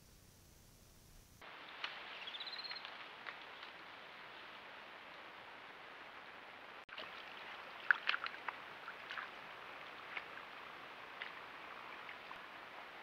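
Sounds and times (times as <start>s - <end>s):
background hiss: 0.0s - 13.0s
feet splashing in mud: 6.9s - 12.8s.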